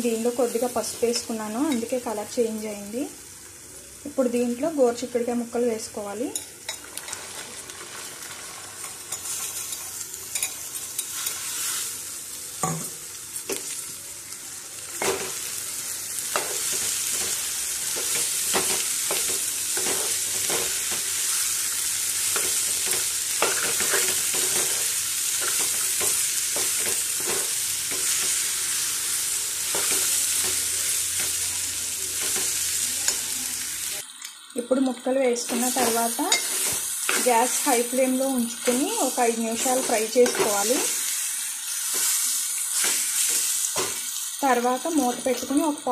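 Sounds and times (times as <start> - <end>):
beans sizzling in oil: 0.0 - 45.9.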